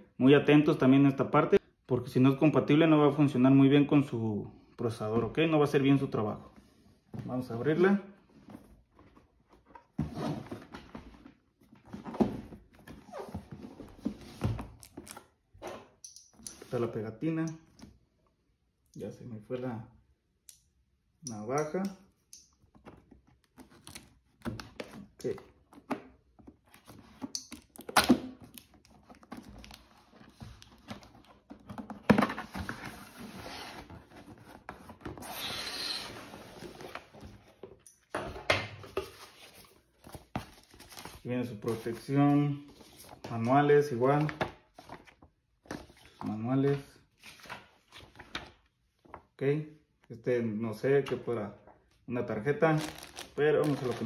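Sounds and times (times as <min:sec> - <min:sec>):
cardboard scraping and rustling: 0:29.2 - 0:35.4.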